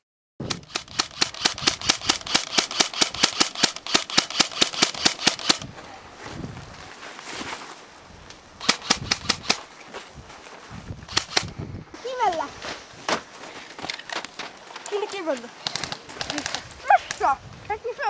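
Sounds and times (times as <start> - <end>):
airsoft rifle rapid fire: 0.4 - 5.7, 8.6 - 9.6, 11.1 - 11.5.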